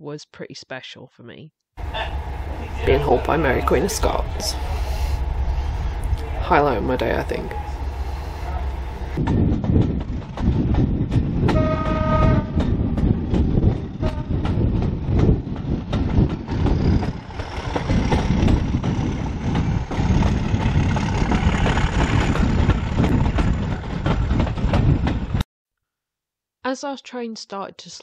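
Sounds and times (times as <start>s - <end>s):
train wheels clattering on rails: 1.8s - 25.4s
train horn blast: 11.5s - 12.8s, 14.0s - 14.5s.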